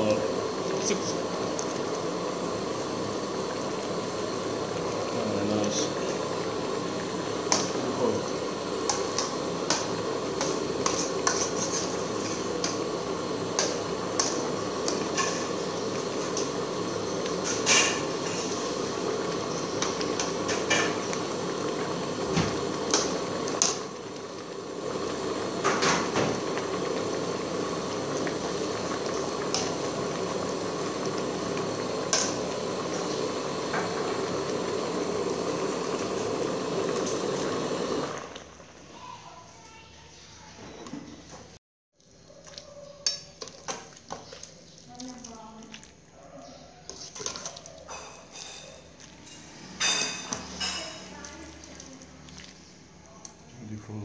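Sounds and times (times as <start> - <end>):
soup bubbling: 0.2 - 38.9, 41.9 - 46.2, 51.4 - 53.4.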